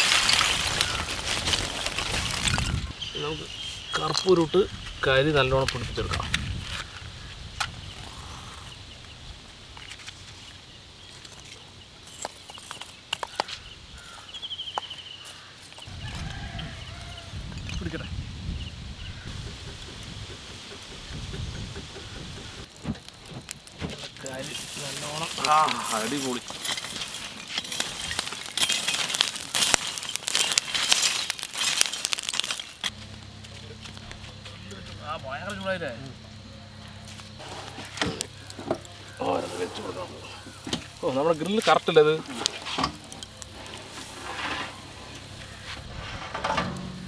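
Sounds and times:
burning coals crackling: 0.0s - 47.0s
charcoal knocking and clinking: 22.6s - 32.9s
metal spoon scraping charcoal: 24.0s - 33.0s, 37.1s - 47.0s.

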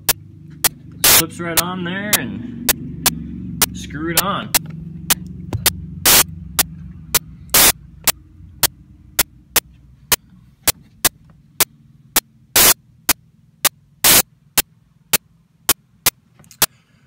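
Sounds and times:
crackling bursts: 0.0s - 1.2s, 4.5s - 8.2s, 11.0s - 16.2s
sharp electronic clicks: 0.0s - 10.3s, 11.0s - 16.7s
electrical hum and static: 0.0s - 16.8s.

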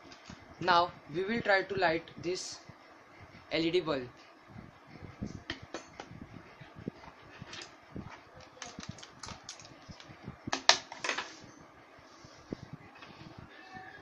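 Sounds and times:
hands clicking and tapping small parts: 8.4s - 10.8s.

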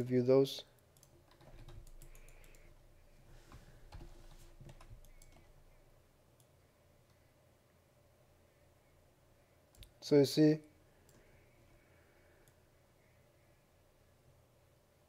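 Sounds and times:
mouse and keyboard clicks: 1.0s - 2.8s, 3.9s - 5.6s.

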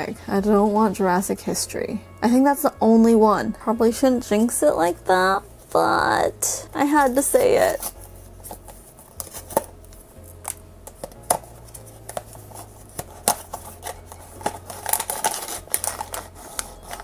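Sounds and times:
packaging rustling: 7.0s - 17.0s.

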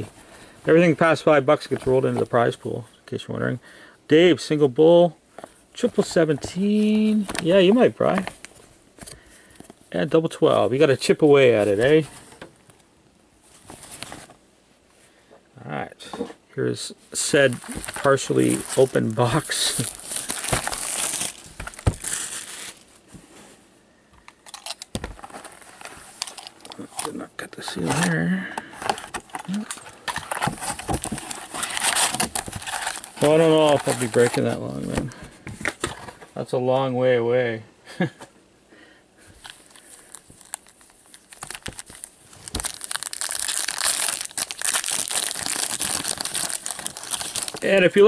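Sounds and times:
plastic shrink wrap crinkling: 17.2s - 22.9s, 28.8s - 35.0s, 39.4s - 48.0s.

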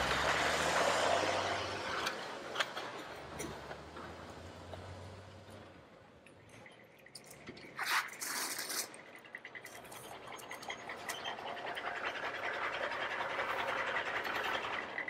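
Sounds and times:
toy truck wheels rattling: 6.4s - 15.0s
toy truck scraping: 7.4s - 15.0s.

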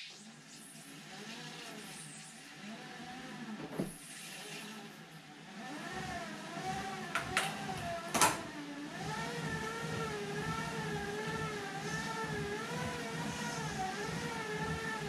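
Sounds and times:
bicycle rollers whirring: 0.0s - 8.2s, 8.9s - 15.0s.

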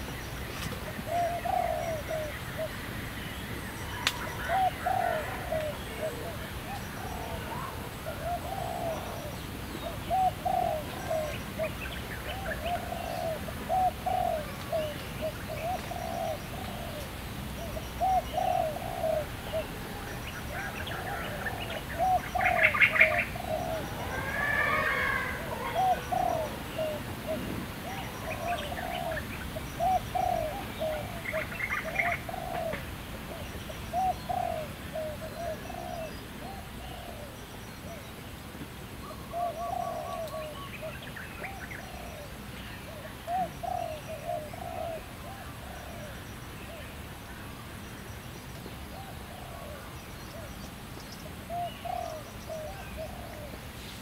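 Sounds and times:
dove cooing: 0.0s - 2.9s, 3.7s - 38.0s, 39.0s - 46.9s, 48.9s - 50.6s, 51.3s - 54.0s
birds chirping: 0.0s - 38.4s, 39.0s - 54.0s
high trilled bird call: 23.8s - 26.5s.

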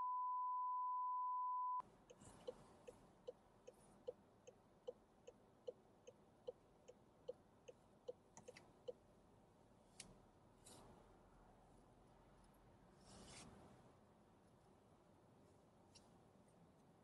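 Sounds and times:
steady high beep: 0.0s - 1.8s
car indicator relay ticking: 2.4s - 9.0s.

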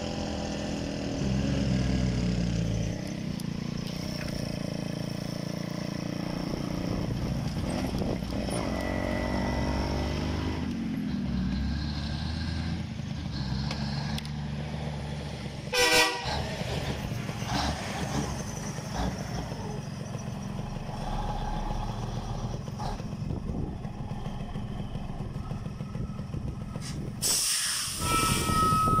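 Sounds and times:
truck engine rumbling: 0.0s - 29.0s
air brake hiss: 26.8s - 29.0s.

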